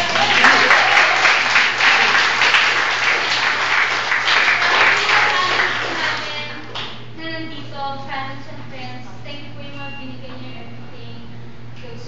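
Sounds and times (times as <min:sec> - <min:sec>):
crowd applauding: 0:00.0 - 0:06.9.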